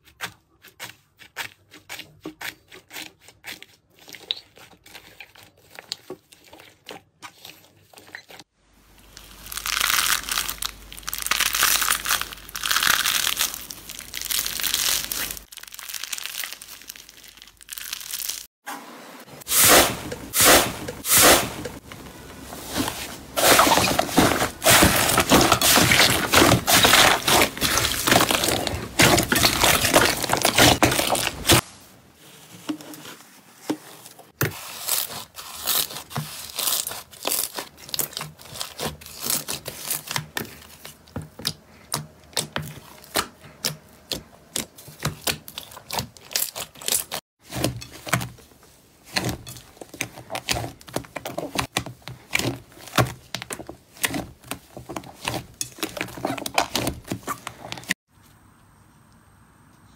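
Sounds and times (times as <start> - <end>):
slime crackling and squelching: 0.8 - 18.6, 19.5 - 31.8, 34.3 - 58.1.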